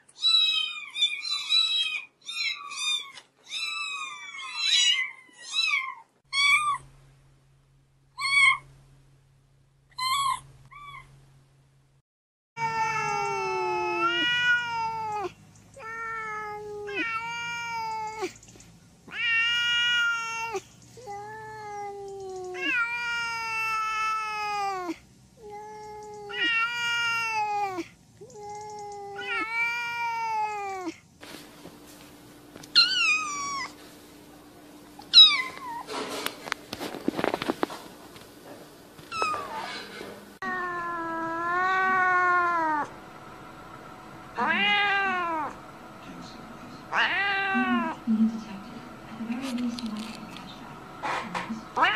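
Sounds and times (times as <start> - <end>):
cat meowing: 0.2 - 6.8, 12.6 - 18.4, 19.1 - 31.0, 32.8 - 33.8, 35.1 - 35.9, 39.1 - 39.5, 40.4 - 42.9, 44.4 - 45.6, 46.9 - 48.0
short high cat cries: 12.6 - 18.4, 19.1 - 27.8, 40.4 - 42.9, 44.4 - 45.6, 46.9 - 48.0
scuffling noise: 31.2 - 32.8, 35.4 - 38.4.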